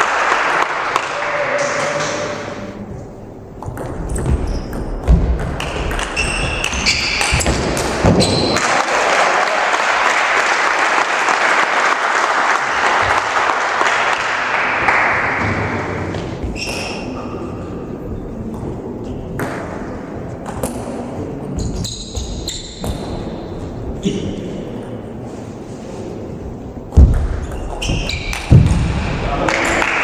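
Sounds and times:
spectators applauding: 0.0 - 1.6, 8.6 - 15.4, 29.4 - 30.0
shoe squeaks: 4.2 - 5.0, 6.1 - 7.6, 8.2 - 8.6, 16.5 - 17.4, 21.6 - 23.5, 27.4 - 28.4.

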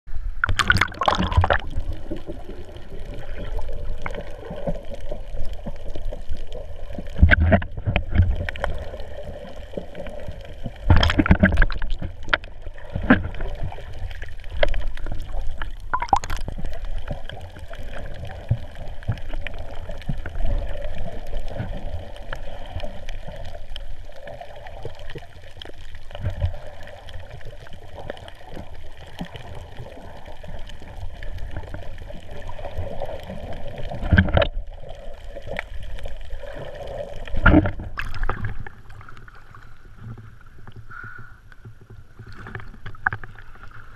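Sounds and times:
muffled underwater water gurgling: 0.1 - 43.9.

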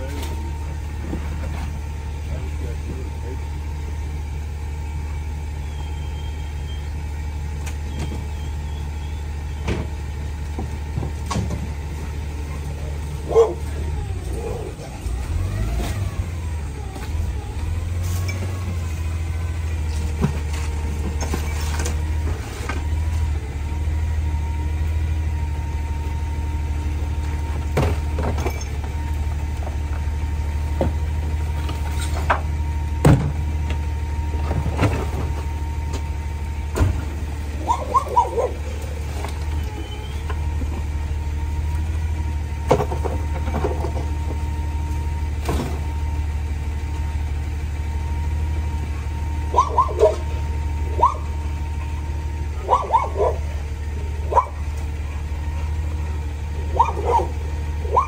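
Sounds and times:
trash and metal clanking: 0.0 - 2.3, 6.6 - 47.2
garbage truck engine idling: 0.0 - 58.0.

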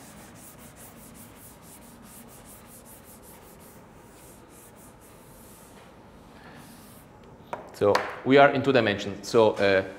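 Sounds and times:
eraser rubbing a chalkboard: 0.0 - 5.9, 6.6 - 7.1.

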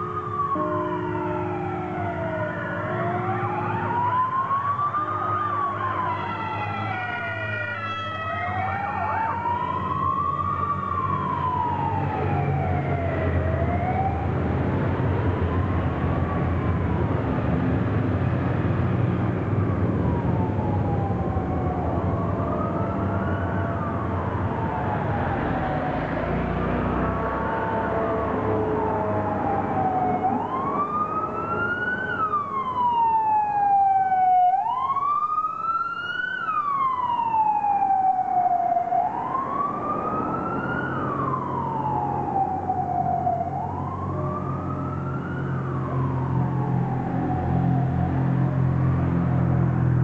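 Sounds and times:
siren stepping in pitch: 0.0 - 14.2, 19.6 - 49.8
police sirens wailing: 0.0 - 50.0.

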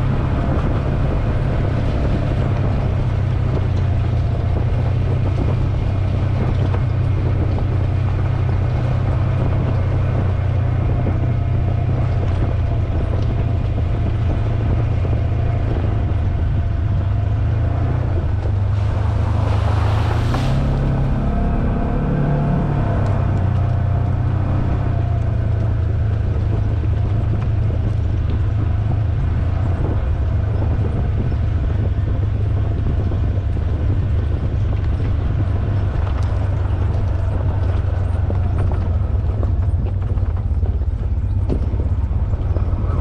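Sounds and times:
vehicle engine running: 0.0 - 43.0
light rattles and knocks: 23.1 - 43.0.

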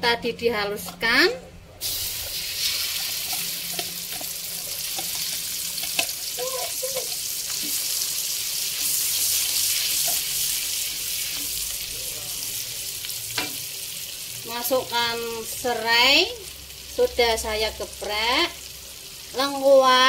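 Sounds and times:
spice paste sizzling in oil: 1.8 - 20.0.

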